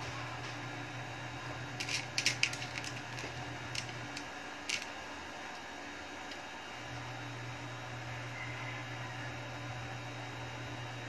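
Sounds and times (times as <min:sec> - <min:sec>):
small parts clicking: 0:01.8 - 0:05.6.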